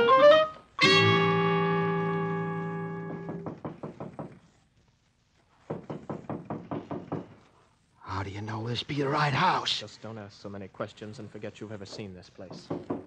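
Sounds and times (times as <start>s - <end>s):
music chord: 0.0s - 3.3s
quick knocks: 3.0s - 4.6s, 11.9s - 13.0s.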